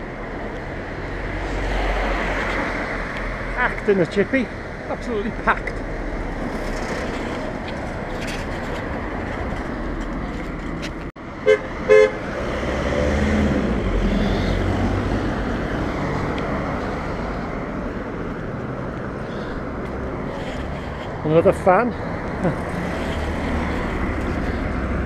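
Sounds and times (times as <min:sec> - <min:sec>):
street traffic noise: 0:00.0 - 0:25.0
car horn toots: 0:11.4 - 0:12.2
car driving past: 0:12.3 - 0:17.6.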